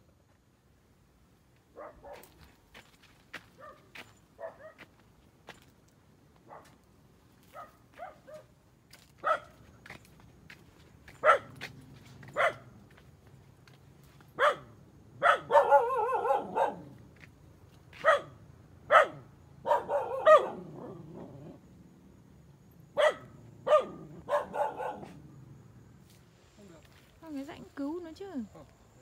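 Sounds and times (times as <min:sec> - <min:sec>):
dog barking: 0:01.7 - 0:02.4, 0:03.6 - 0:04.9, 0:06.4 - 0:06.8, 0:07.5 - 0:08.5, 0:09.2 - 0:09.6, 0:11.2 - 0:11.6, 0:12.3 - 0:12.8, 0:14.4 - 0:17.0, 0:18.0 - 0:21.3, 0:22.9 - 0:25.2
dog howling: 0:15.5 - 0:16.8, 0:19.7 - 0:21.6.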